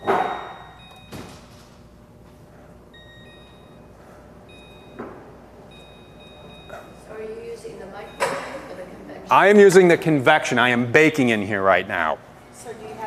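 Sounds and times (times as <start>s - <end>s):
microwave keypad beeps: 0.0s - 1.5s, 2.9s - 7.0s, 8.0s - 8.7s.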